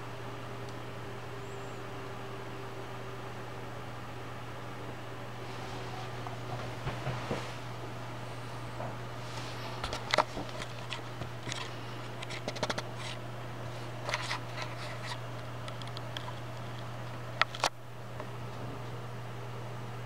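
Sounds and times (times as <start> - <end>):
computer fans humming: 0.0 - 20.0
light clicks and scratches: 8.7 - 13.2, 13.8 - 17.7.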